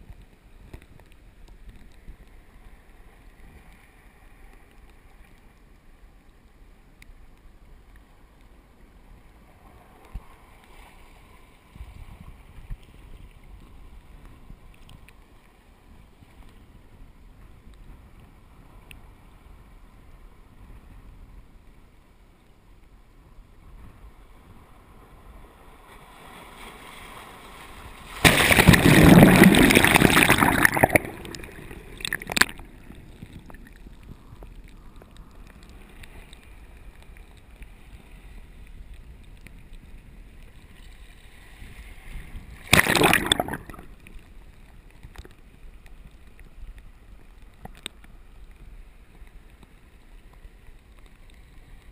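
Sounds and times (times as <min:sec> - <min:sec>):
surf washing into tide pool: 0:24.3 - 0:33.9, 0:41.2 - 0:44.1
surge of rushing water: 0:24.4 - 0:39.8, 0:40.5 - 0:45.1.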